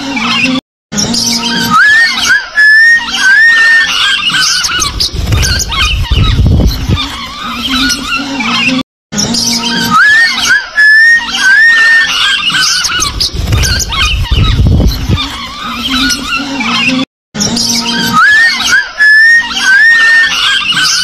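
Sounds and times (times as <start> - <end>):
birds chattering and chirping: 0.0 - 21.0
rising whistled bird calls: 1.1 - 8.2, 9.2 - 16.8, 17.4 - 21.0.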